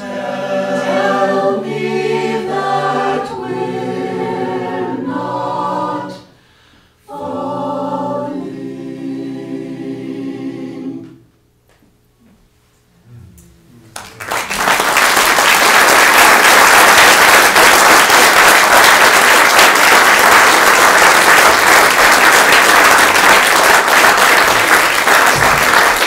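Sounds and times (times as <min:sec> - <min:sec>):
audience applause: 0:14.0 - 0:26.0.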